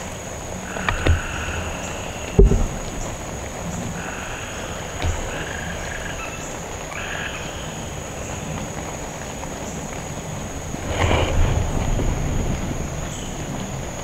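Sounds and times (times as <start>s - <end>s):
frogs croaking: 0.0s - 14.0s
light knock: 2.4s - 3.0s.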